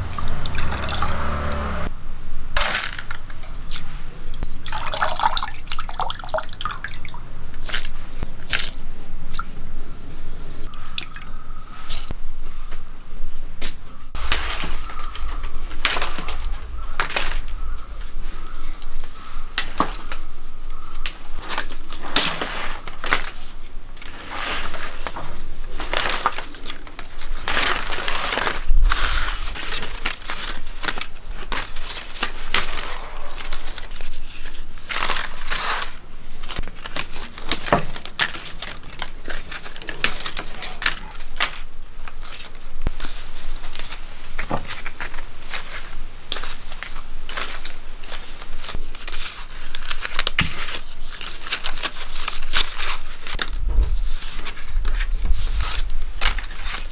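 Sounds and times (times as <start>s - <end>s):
leaves rustling and snapping: 0.0s - 1.7s, 13.6s - 56.9s.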